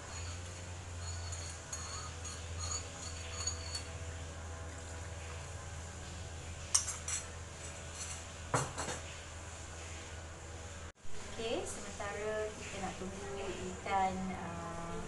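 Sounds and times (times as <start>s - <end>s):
utensil clinking on metal pot: 0.0s - 4.0s
low machine drone: 0.0s - 6.7s.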